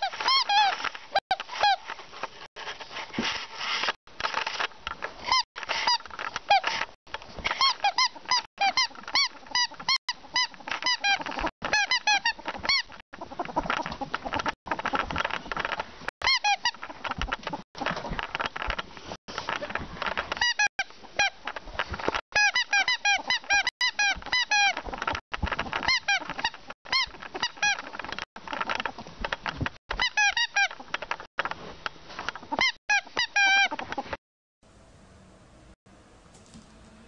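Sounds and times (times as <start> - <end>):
ferret squeaky chirps: 0.0 - 1.8, 7.5 - 15.0, 16.2 - 17.9, 22.4 - 25.2, 30.0 - 30.9, 32.4 - 34.1
rustling and scuffling: 0.0 - 22.2.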